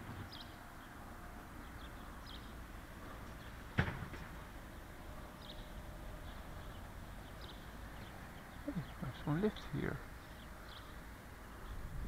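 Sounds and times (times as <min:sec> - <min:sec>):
sharp knock: 0:03.8 - 0:04.4
faint bird chirps: 0:05.3 - 0:11.9.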